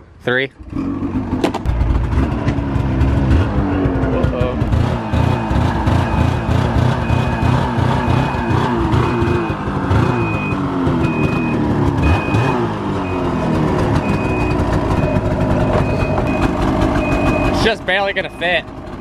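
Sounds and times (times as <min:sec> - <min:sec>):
snowmobile engine revving: 0:00.6 - 0:18.6
high warning beeper: 0:05.2 - 0:18.6.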